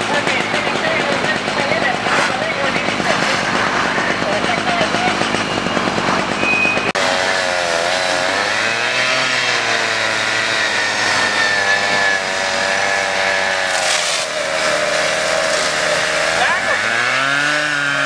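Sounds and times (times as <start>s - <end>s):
engine running fast: 0.0s - 9.6s.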